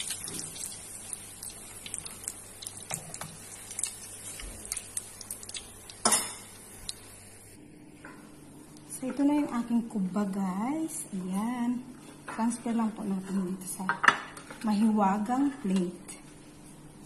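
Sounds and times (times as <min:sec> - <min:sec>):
hot oil sizzling in a frying pan: 0:00.0 - 0:07.4.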